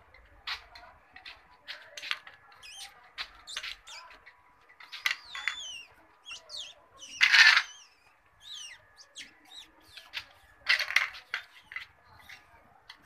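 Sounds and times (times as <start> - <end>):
squeaky animal calls: 4.9 - 10.3.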